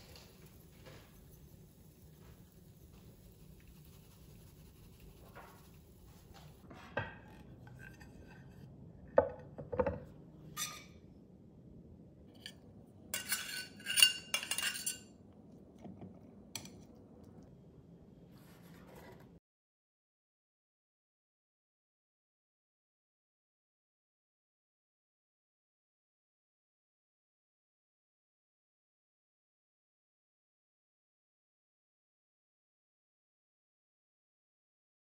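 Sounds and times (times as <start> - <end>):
metal spatula scraping frying pan: 7.6 - 8.7, 13.2 - 15.1.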